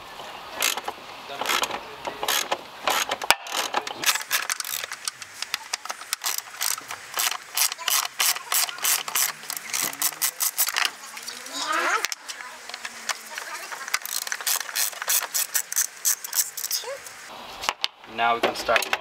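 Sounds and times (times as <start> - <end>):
ratchet clicking: 0.6 - 10.9, 12.0 - 16.8.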